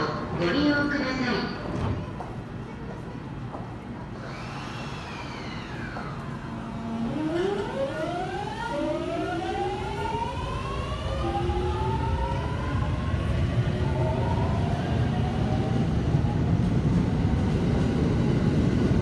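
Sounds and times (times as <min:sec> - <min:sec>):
train wheels rumbling: 0:01.6 - 0:19.0
electric train motors whining: 0:04.2 - 0:14.6.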